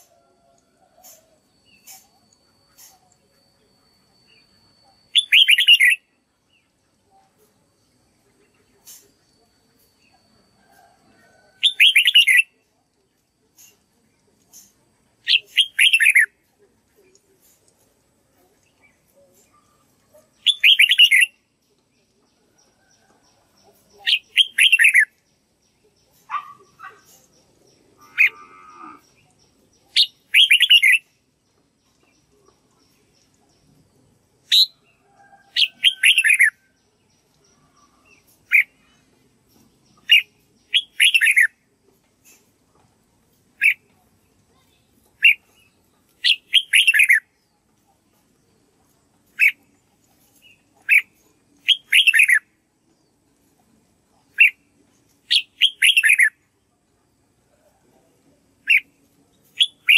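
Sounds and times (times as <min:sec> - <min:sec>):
bird singing: 0:00.0 - 0:12.6, 0:15.2 - 0:17.2, 0:18.4 - 0:41.6, 0:43.6 - 0:48.6, 0:50.3 - 0:53.1, 0:55.2 - 0:56.7.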